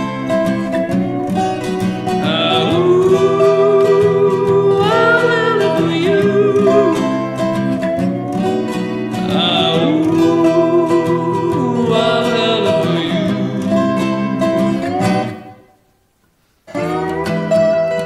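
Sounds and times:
resonator guitar: 0.0s - 15.9s, 16.7s - 18.0s
acoustic guitar: 0.0s - 18.0s
man singing held notes: 2.1s - 7.5s, 9.2s - 14.4s.

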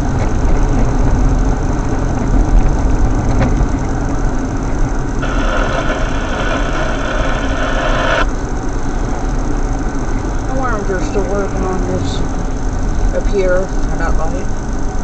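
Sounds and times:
car engine and road rumble: 0.0s - 15.0s
bright hiss: 5.2s - 8.3s.

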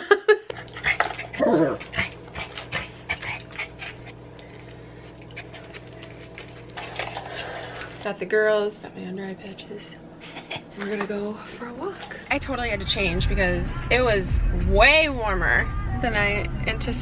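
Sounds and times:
dog whining: 1.0s - 2.1s
leash and harness rattling: 5.3s - 7.4s.

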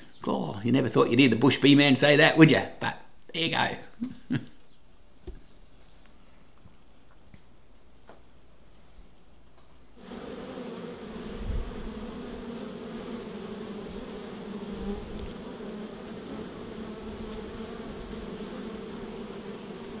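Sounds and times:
bees buzzing: 10.0s - 20.0s.

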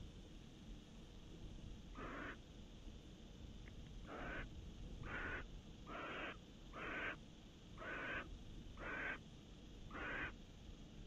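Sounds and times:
barn owl hissing calls: 2.0s - 2.4s, 4.1s - 7.2s, 7.8s - 9.2s, 9.9s - 10.4s.

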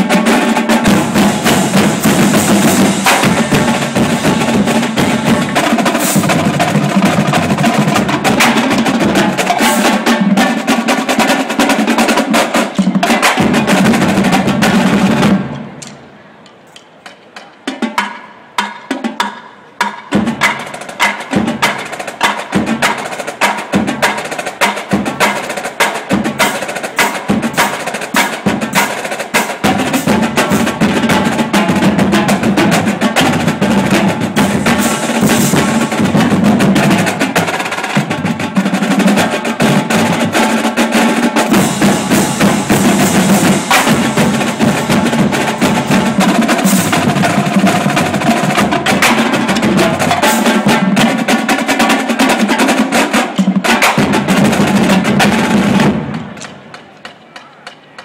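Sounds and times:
marching drumline: 0.0s - 16.0s, 16.7s - 58.0s
cymbals: 0.0s - 58.0s.

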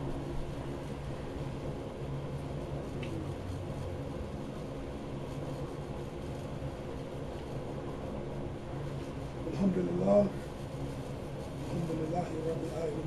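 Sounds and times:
faint hiss: 0.0s - 13.0s
low mechanical hum: 0.0s - 13.0s.

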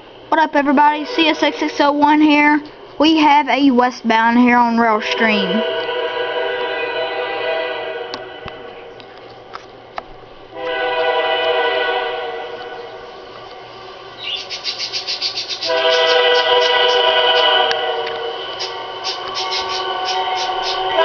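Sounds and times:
locomotive air horn blasts: 5.2s - 8.8s, 10.5s - 13.0s, 15.6s - 18.5s, 19.5s - 21.0s.

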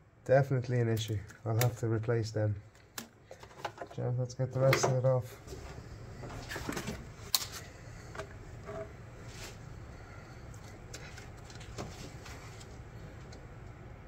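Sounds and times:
steady low hum: 0.0s - 14.0s
hoses being handled clicks: 0.9s - 3.9s.

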